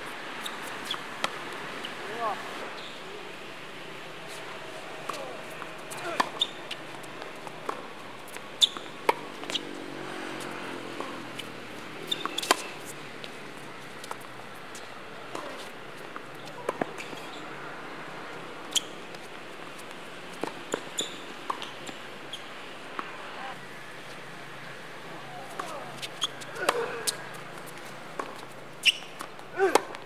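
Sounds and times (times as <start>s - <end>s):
rackets striking tennis ball: 5.0s - 7.9s, 10.4s - 13.0s, 25.4s - 30.0s
tennis ball bouncing: 5.0s - 9.8s, 10.4s - 13.0s, 14.0s - 17.4s, 18.7s - 23.1s, 25.5s - 30.0s.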